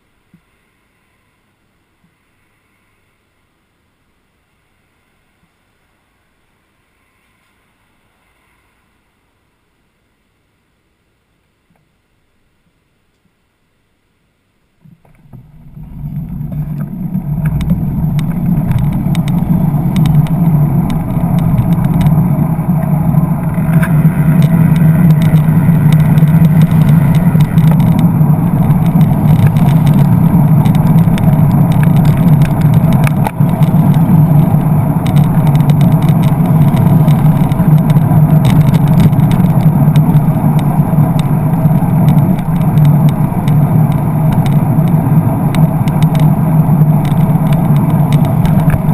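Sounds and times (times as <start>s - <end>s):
road noise: 14.8s - 48.9s
wind rumble: 14.8s - 48.9s
small rattles: 14.9s - 48.9s
cars passing: 15.1s - 48.9s.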